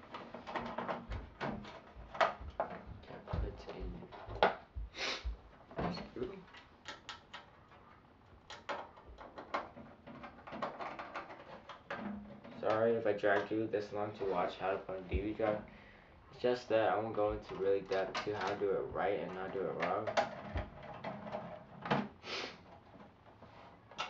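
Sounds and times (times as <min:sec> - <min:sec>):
low thumps: 0:01.1 - 0:06.2.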